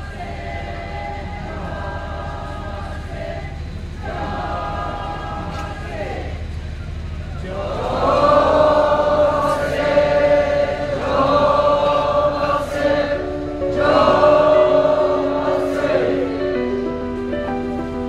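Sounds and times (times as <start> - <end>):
crowd singing a hymn: 0.0 - 18.0
held instrumental notes: 8.3 - 18.0.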